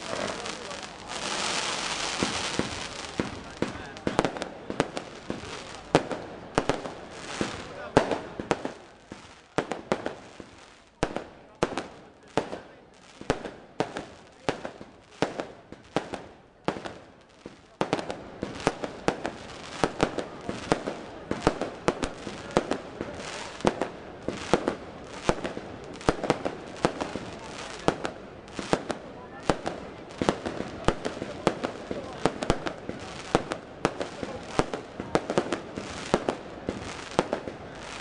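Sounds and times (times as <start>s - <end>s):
firework hiss: 0.0s - 10.6s
firework bangs: 0.0s - 38.0s.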